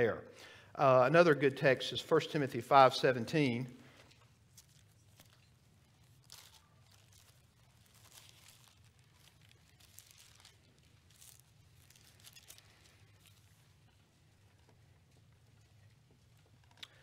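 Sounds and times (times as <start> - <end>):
low steady room hum: 0.0 - 17.0
book pages turning: 3.9 - 17.0.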